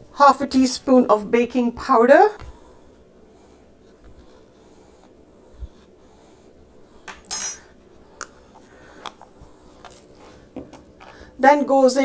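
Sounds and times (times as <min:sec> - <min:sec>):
metal spoon clinking on crockery: 0:07.3 - 0:07.7.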